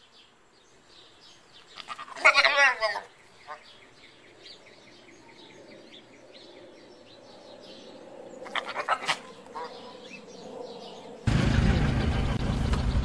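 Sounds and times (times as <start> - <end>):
birds chirping: 0.0 - 13.0
loud bird calls: 0.0 - 13.0
loud rumbling noise: 11.2 - 13.0.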